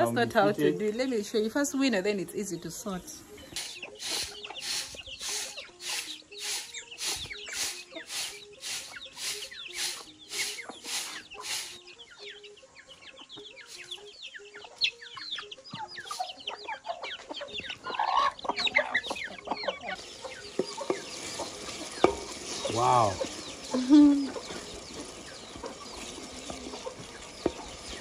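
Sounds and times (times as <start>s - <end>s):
chickens clucking: 3.0s - 28.0s
rice swishing on a metal tray: 3.6s - 11.8s, 20.0s - 28.0s
tomatoes sizzling in hot oil: 3.6s - 11.8s, 20.0s - 28.0s.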